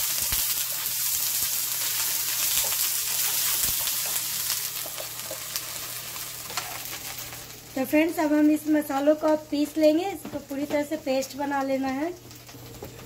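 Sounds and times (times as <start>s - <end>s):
okra sizzling in oil: 0.0s - 10.3s.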